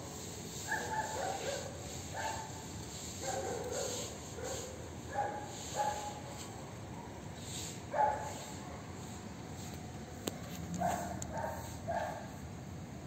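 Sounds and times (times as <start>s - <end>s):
small dog yipping: 0.7s - 2.4s.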